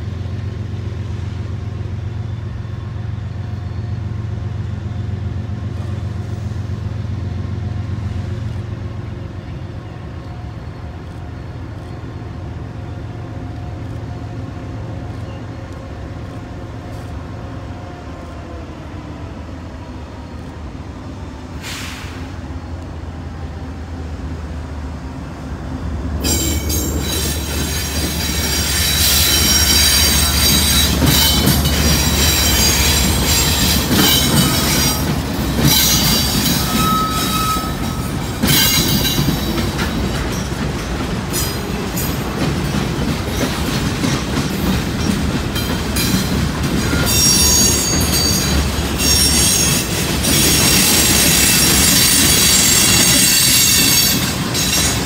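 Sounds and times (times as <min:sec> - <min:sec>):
locomotive engine rumble: 0:00.0 - 0:55.0
high-pitched wheel squealing: 0:26.2 - 0:39.1, 0:46.8 - 0:55.0
wheels on rails: 0:26.2 - 0:55.0.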